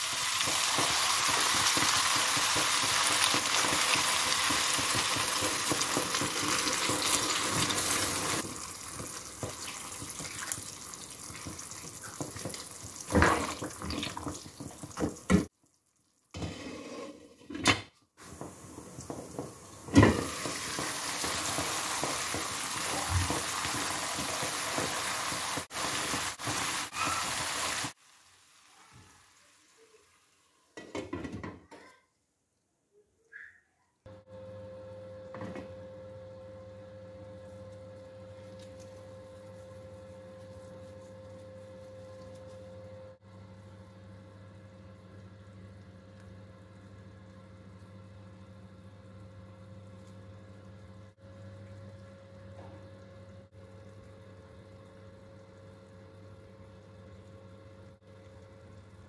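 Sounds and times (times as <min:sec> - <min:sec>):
water hissing in hot pan: 0:00.0 - 0:15.3, 0:18.2 - 0:30.6.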